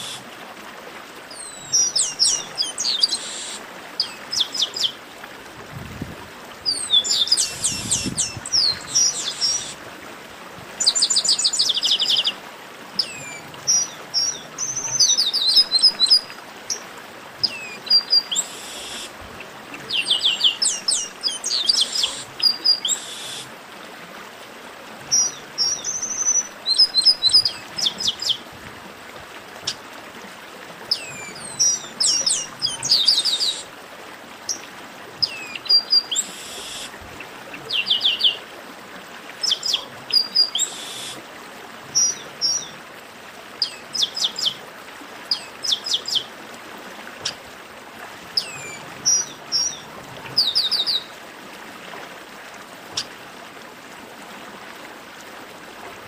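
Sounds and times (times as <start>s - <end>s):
steady background hiss: 14.1s - 24.0s, 40.2s - 43.6s.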